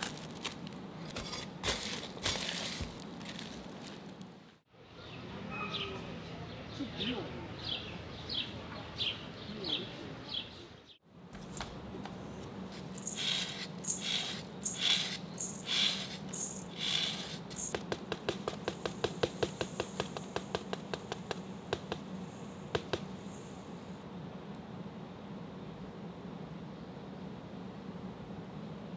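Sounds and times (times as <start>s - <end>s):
yeast granules pattering: 0.0s - 4.4s
salt sprinkling hiss: 1.6s - 4.2s, 12.6s - 23.8s
steady low hum: 11.0s - 28.9s.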